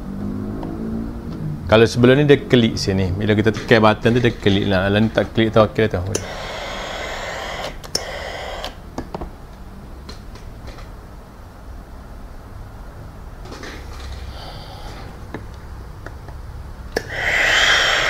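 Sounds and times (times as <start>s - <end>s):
steam iron hissing: 6.2s - 8.8s, 17.0s - 18.0s.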